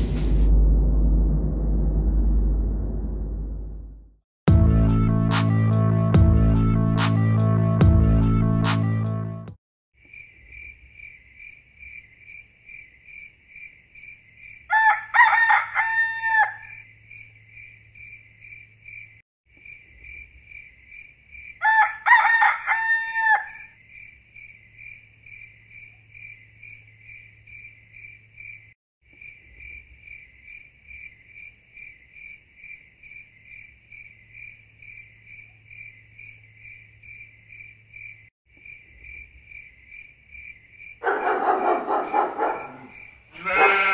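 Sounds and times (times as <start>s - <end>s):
crickets chirping: 10.0s - 43.8s
rooster crowing: 14.7s - 16.8s, 21.6s - 23.7s, 41.0s - 43.9s.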